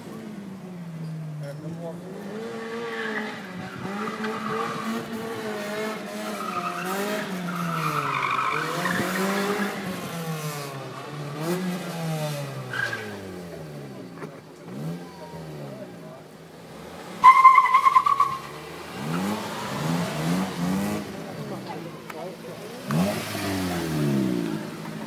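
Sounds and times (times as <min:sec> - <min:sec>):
car engine revving: 0:00.0 - 0:25.0
tyres squealing on tarmac: 0:02.3 - 0:05.2, 0:06.2 - 0:09.8, 0:12.6 - 0:13.3, 0:17.2 - 0:20.4.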